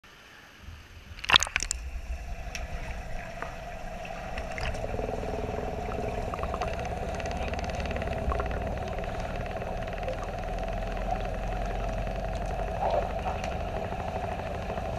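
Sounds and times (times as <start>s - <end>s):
underwater pool hum: 0.6s - 14.9s
water splashing: 0.7s - 14.9s
underwater clicks and bubbles: 1.1s - 14.9s.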